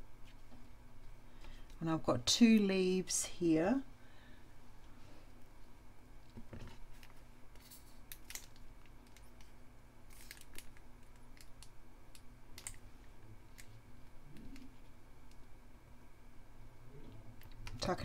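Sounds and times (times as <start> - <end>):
small clicks of paper: 10.1 - 12.8.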